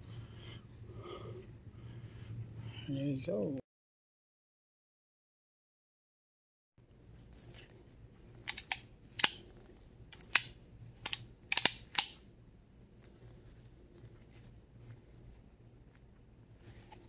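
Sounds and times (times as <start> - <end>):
pistol slide metallic clicks: 8.5 - 9.4, 10.1 - 12.2.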